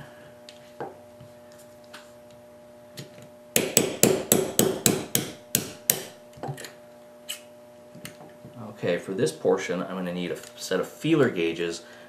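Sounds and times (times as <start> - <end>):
small hammer tapping metal: 3.6 - 6.1.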